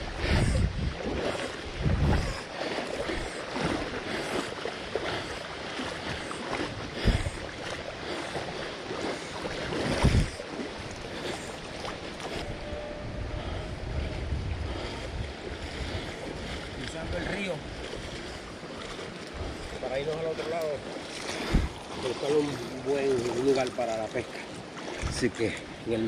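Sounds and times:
river current flowing: 0.0 - 26.0
water sloshing around wading legs: 0.0 - 26.0.

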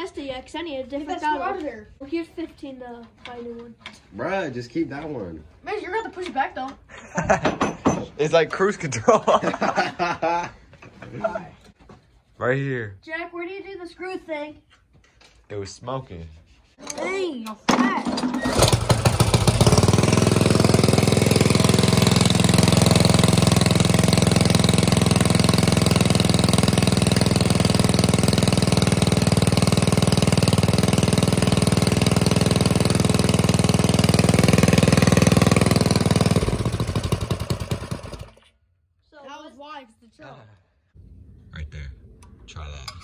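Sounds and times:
small engine idling: 18.1 - 38.5.

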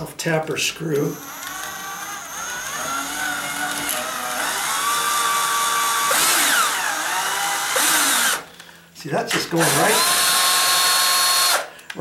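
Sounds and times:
cordless drill motor whine: 1.0 - 8.6, 9.6 - 11.7.

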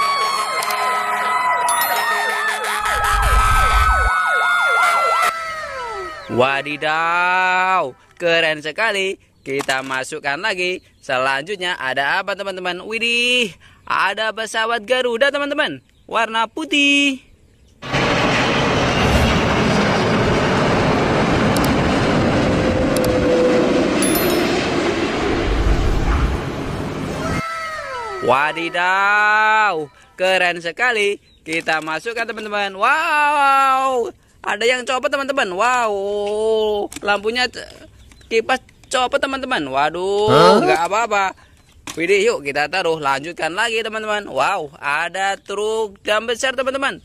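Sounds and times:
fast yelp siren: 0.0 - 8.0, 27.2 - 29.9
steady siren tone: 0.0 - 8.0, 22.6 - 29.9
jet engines roaring: 17.8 - 27.4
low rumble: 17.9 - 27.4.

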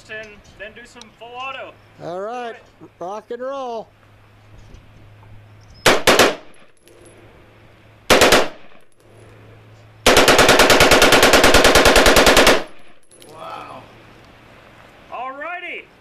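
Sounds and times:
rifle firing rapid bursts: 5.9 - 6.6, 8.1 - 8.8, 10.0 - 13.0.

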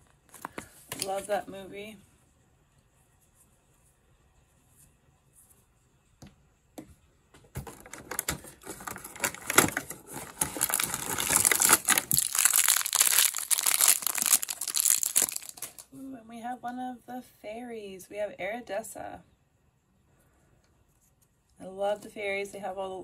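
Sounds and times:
plastic wrapper crinkling: 7.6 - 15.9.

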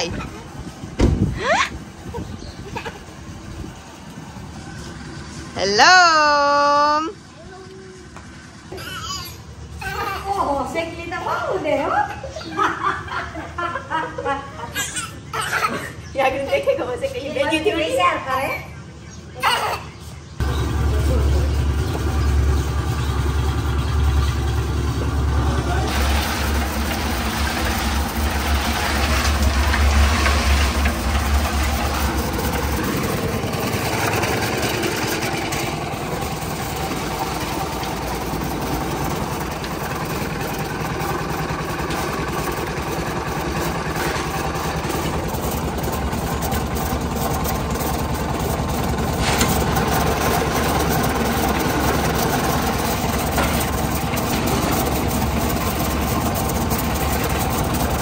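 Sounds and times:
concrete mixer running: 0.0 - 18.2, 20.4 - 58.0
deep low hum: 20.4 - 42.4.

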